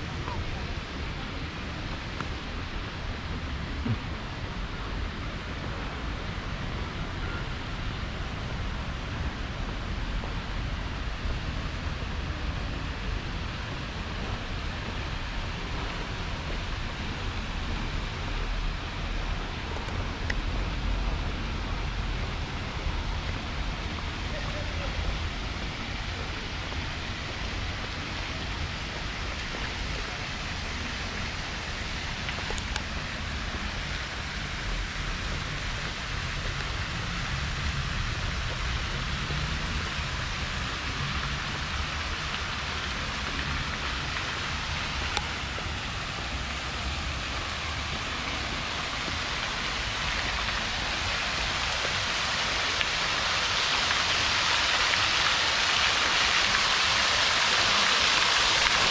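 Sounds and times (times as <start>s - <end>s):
falling water hissing: 23.3s - 58.9s.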